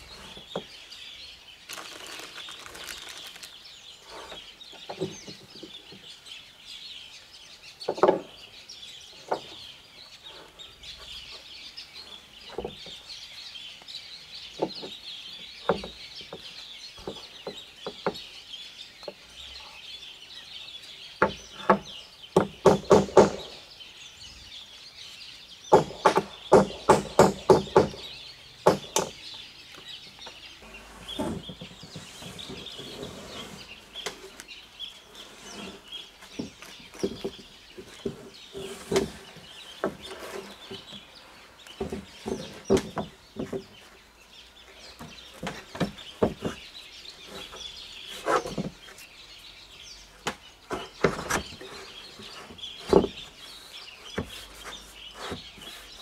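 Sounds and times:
hammer knocking on roofing sheets: 0:21.2 - 0:23.6, 0:25.7 - 0:29.2.

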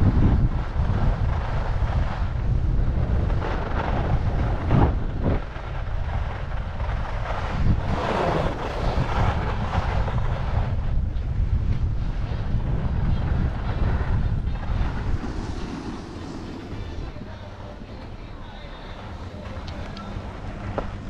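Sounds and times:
wind buffeting microphone: 0:00.0 - 0:21.0
skis hissing on snow: 0:14.6 - 0:17.2.

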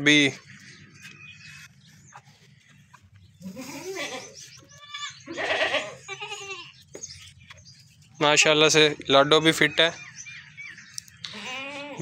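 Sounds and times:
goats bleating: 0:03.4 - 0:06.8, 0:11.3 - 0:12.0.

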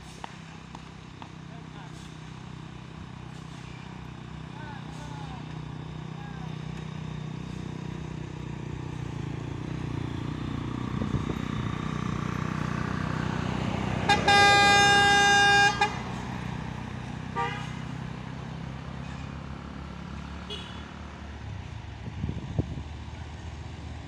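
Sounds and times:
truck engine running: 0:00.0 - 0:24.0
vehicle horn blast: 0:14.0 - 0:16.2, 0:17.4 - 0:17.9, 0:20.5 - 0:20.9.

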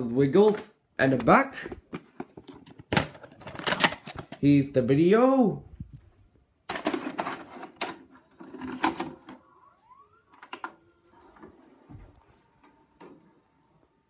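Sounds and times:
cassette handling clatter: 0:00.4 - 0:04.5, 0:06.7 - 0:09.4.

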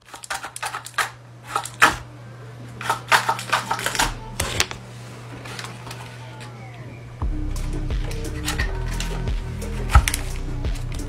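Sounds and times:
stiff paper clicking and rustling: 0:00.0 - 0:02.0, 0:02.8 - 0:06.5, 0:09.8 - 0:11.0
low hum: 0:01.2 - 0:11.0.

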